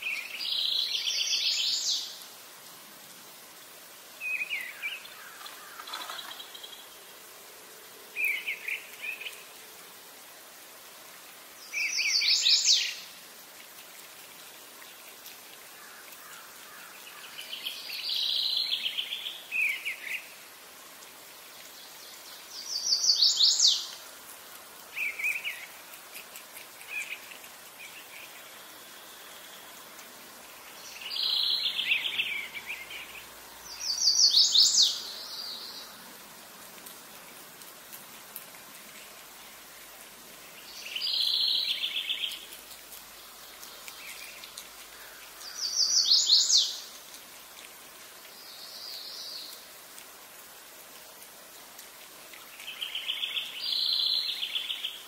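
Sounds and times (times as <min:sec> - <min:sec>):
songbird singing: 0:00.0 - 0:02.4, 0:04.1 - 0:09.8, 0:11.6 - 0:13.7, 0:14.8 - 0:20.6, 0:21.3 - 0:24.2, 0:24.8 - 0:36.4, 0:39.0 - 0:47.2, 0:48.2 - 0:49.8, 0:52.3 - 0:55.0
faint background hiss: 0:00.0 - 0:55.0.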